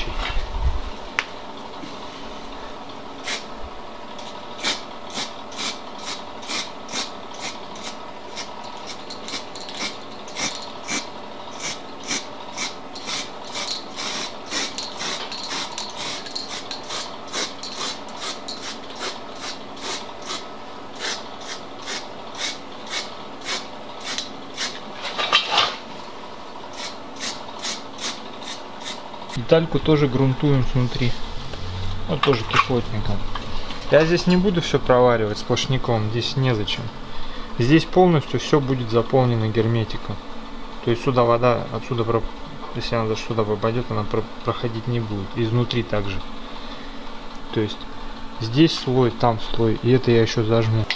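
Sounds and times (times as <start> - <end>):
faint steady hum: 0.0 - 50.9
aerosol spray hissing: 11.6 - 20.4, 21.0 - 24.8.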